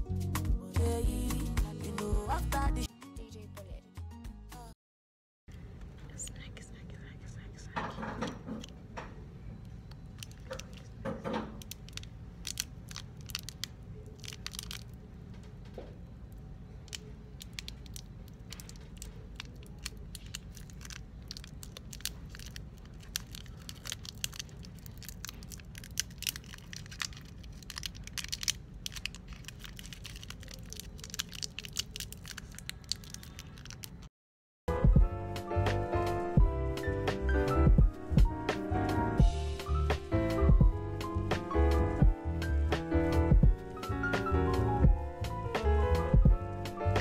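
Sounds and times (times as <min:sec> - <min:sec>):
small clicks and rustles of handling: 0:07.8 - 0:16.0, 0:16.8 - 0:34.1.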